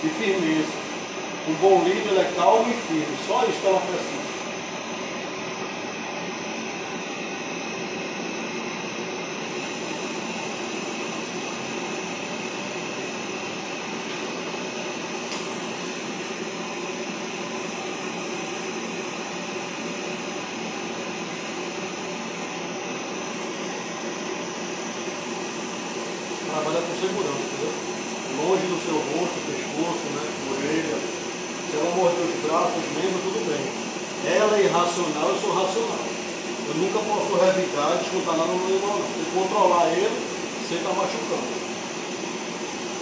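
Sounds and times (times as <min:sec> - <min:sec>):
grooming dryer blowing air: 0:00.0 - 0:43.0.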